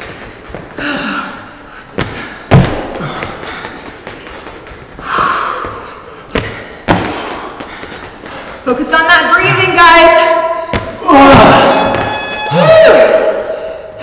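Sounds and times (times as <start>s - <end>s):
shoes thudding on rubber floor: 1.8s - 8.6s, 10.6s - 12.5s.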